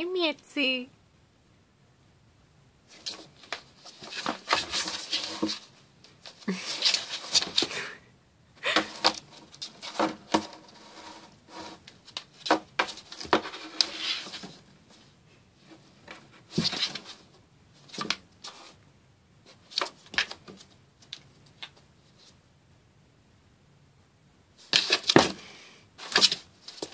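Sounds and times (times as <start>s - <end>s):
cat claws scratching cardboard: 2.9s - 7.8s, 8.7s - 14.6s, 16.0s - 18.8s, 24.6s - 26.9s.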